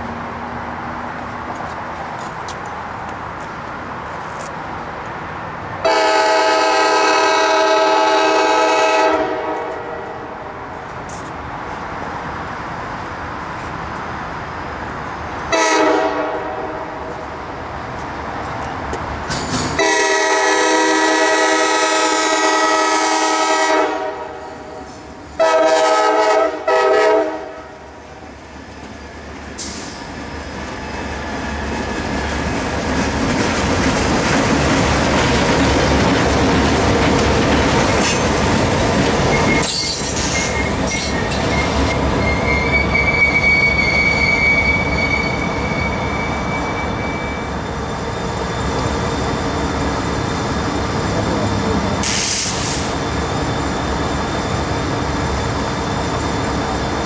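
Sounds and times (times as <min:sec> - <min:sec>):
train rumble: 0:00.0 - 0:57.0
locomotive air horn blasts: 0:05.8 - 0:10.3, 0:15.5 - 0:17.1, 0:19.8 - 0:27.7.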